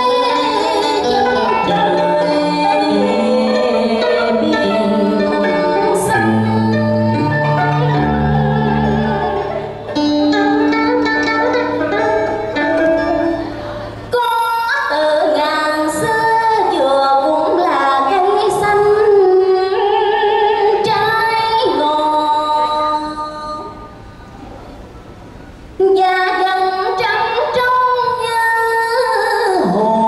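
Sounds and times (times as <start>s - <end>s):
woman singing: 0.0s - 9.4s, 14.1s - 23.9s, 25.8s - 30.0s
instrumental accompaniment: 0.0s - 26.8s.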